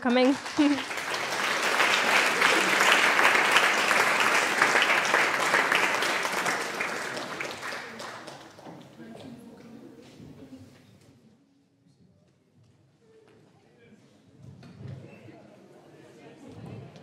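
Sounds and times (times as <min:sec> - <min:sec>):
audience applauding: 0:00.0 - 0:09.1.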